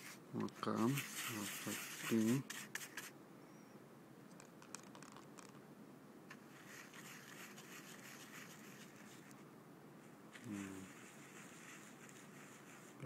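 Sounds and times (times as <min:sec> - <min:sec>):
faint scratching: 0:00.0 - 0:03.1, 0:06.3 - 0:09.4, 0:10.0 - 0:13.0.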